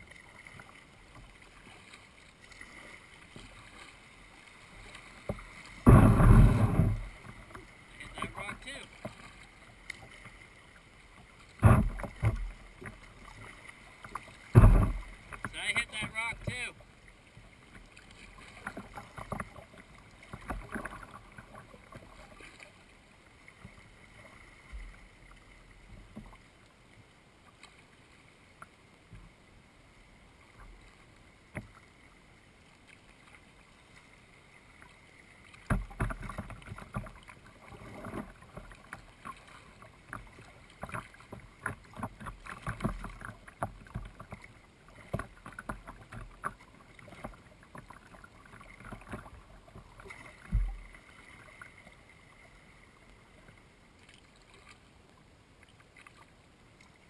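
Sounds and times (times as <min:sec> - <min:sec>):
paddle splashing water: 0:00.0 - 0:57.0
paddle knocking: 0:04.8 - 0:10.4, 0:11.4 - 0:16.8, 0:35.6 - 0:51.0.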